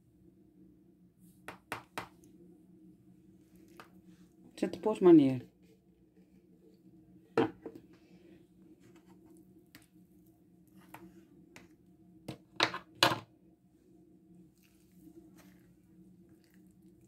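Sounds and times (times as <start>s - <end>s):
plastic bottle knocking on worktop: 7.4s - 7.8s.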